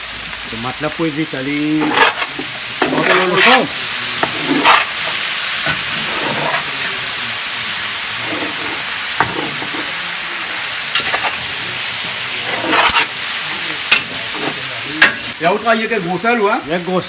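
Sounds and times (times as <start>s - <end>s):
meat and vegetables sizzling: 0.0s - 17.0s
spatula stirring a pot: 1.7s - 6.9s, 8.2s - 10.0s, 12.3s - 13.2s.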